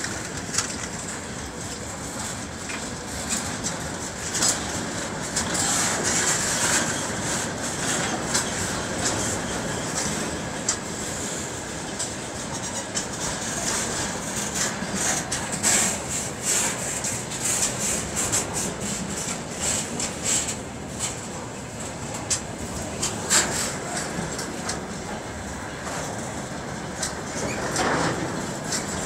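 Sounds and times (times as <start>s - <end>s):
clicks and clanks: 0.0s - 1.2s
train wheels rumbling on rails: 0.0s - 29.0s.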